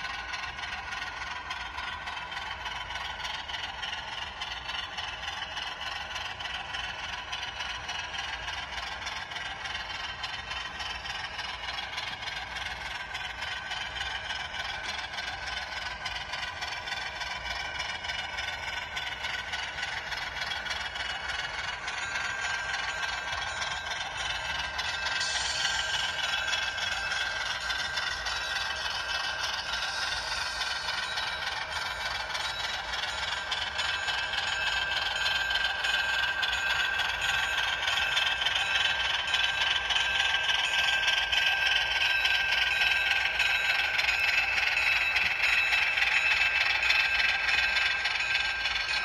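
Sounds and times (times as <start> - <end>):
model train mechanical whine: 0.0 - 49.0
wheel and rail rattle: 0.0 - 49.0.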